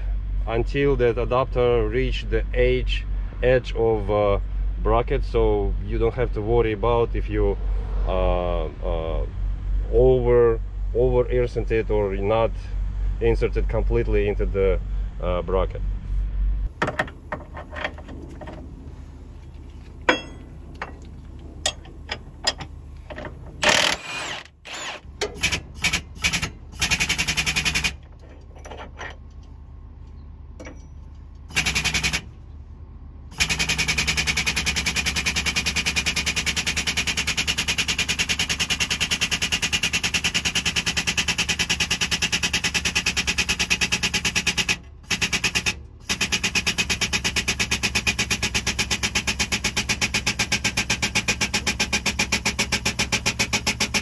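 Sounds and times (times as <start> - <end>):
metal adapters clicking and knocking: 16.7 - 18.6, 19.8 - 24.0, 25.2 - 29.5
hydraulic pump pulsing: 16.7 - 29.0, 33.3 - 54.0.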